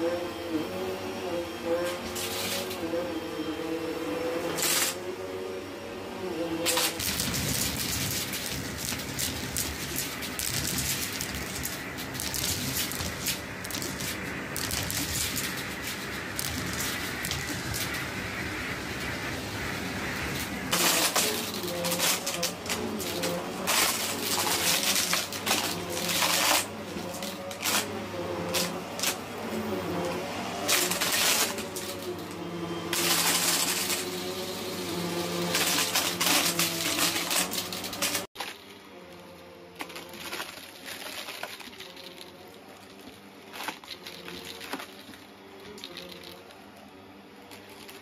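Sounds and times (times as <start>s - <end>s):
vacuum cleaner motor humming: 0.0s - 48.0s
debris rattling through vacuum: 6.6s - 38.8s, 39.8s - 46.6s.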